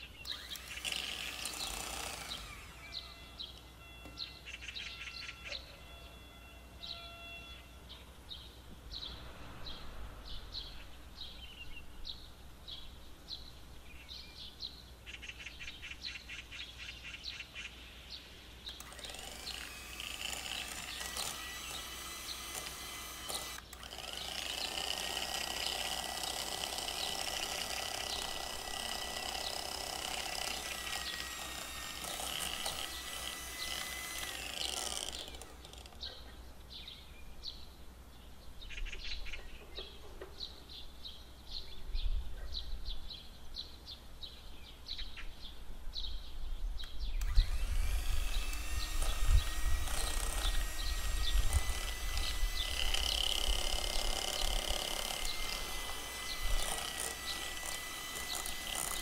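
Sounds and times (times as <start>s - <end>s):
birds chirping: 0.0s - 59.0s
electric hand mixer whirring: 0.3s - 3.1s, 18.8s - 36.0s, 47.2s - 59.0s.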